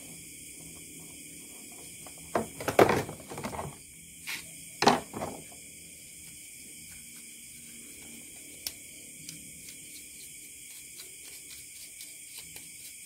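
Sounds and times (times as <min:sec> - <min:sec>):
small parts clattering on wood: 0:02.3 - 0:03.8, 0:04.8 - 0:05.4.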